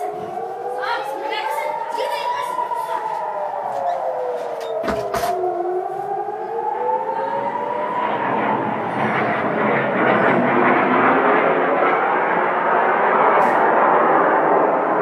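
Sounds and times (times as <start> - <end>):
air-raid siren wailing: 0.0 - 15.0
rushing roar: 6.9 - 15.0.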